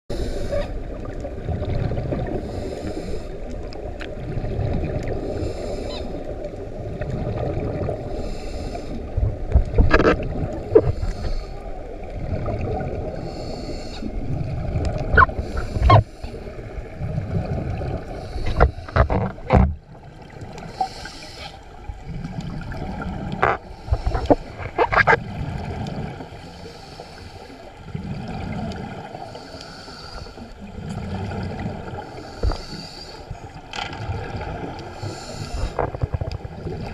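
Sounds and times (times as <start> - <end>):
regulator inhalation hiss: 0.1 - 0.7, 20.7 - 21.7, 32.2 - 33.4, 35.0 - 35.8
exhaled bubbles gurgling: 0.1 - 27.1, 27.8 - 36.9
sharp clicks and knocks: 18.5 - 19.8.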